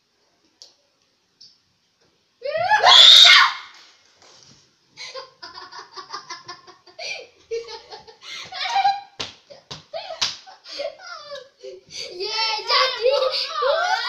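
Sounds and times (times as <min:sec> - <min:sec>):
hearty laughter: 0:05.0 - 0:11.8.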